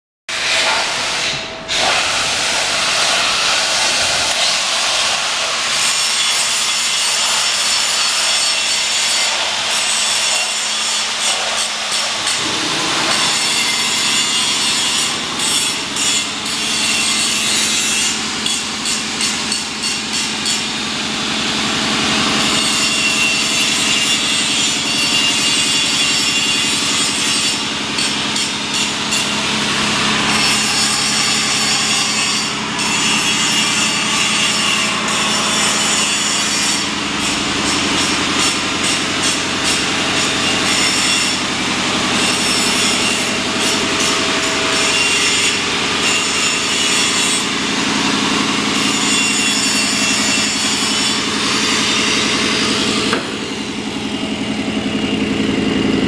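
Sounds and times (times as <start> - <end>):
loud rasping hiss: 0.3 - 20.6.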